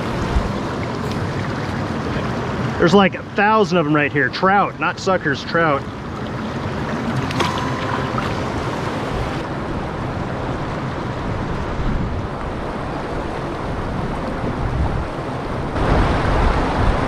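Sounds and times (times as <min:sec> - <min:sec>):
river water rushing over boulders: 0:00.0 - 0:17.0
wind noise on microphone: 0:09.2 - 0:17.0.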